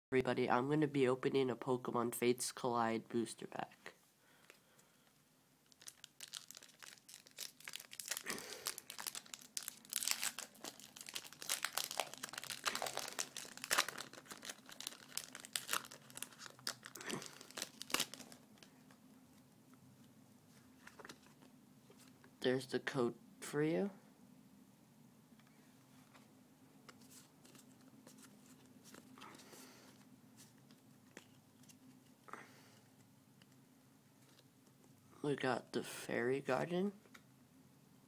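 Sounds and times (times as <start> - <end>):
foil wrapper crinkling and tearing: 5.6 - 18.7.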